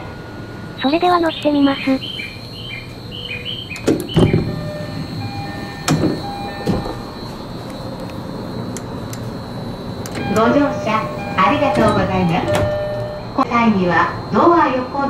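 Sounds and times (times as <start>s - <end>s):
two-note electronic door chime: 1.8s - 13.5s
heavy sliding door thud: 3.6s - 9.1s, 9.7s - 13.2s.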